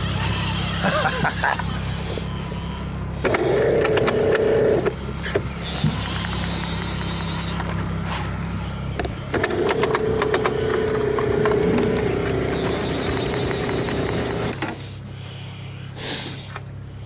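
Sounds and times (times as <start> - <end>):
fishing reel ratchet buzzing: 0.0 - 3.0, 5.6 - 7.8, 12.5 - 14.6
outboard motor hum: 0.0 - 17.0.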